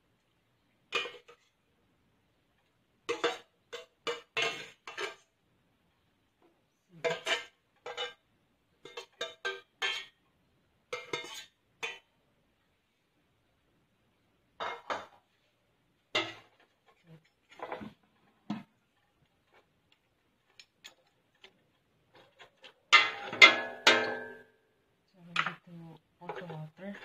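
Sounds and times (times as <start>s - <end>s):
metal utensils clinking on pots: 0.9s - 1.5s, 3.1s - 5.3s, 7.0s - 8.2s, 8.8s - 10.2s, 11.0s - 12.1s, 16.2s - 18.0s, 20.4s - 24.5s, 26.2s - 27.0s
metal spoon stirring in steel pot: 0.9s - 1.6s, 3.1s - 5.4s, 7.0s - 8.2s, 8.8s - 10.2s, 10.9s - 12.1s, 16.1s - 18.0s, 18.8s - 24.4s, 26.2s - 27.0s.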